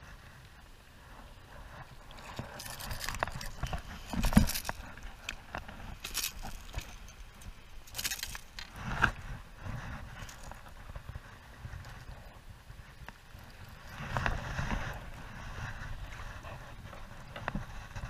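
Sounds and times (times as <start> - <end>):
fishing tackle rattling: 2.2 - 8.7.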